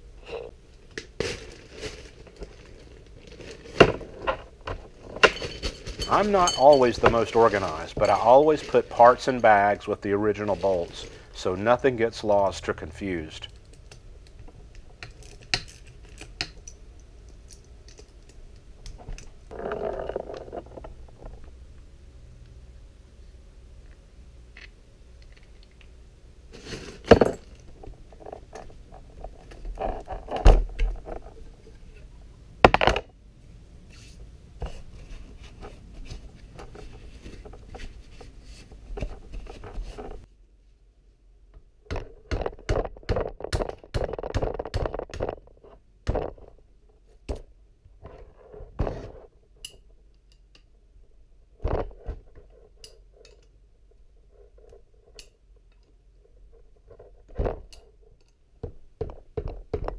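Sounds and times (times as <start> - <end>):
tools and metal parts clinking: 3.3 - 11.5.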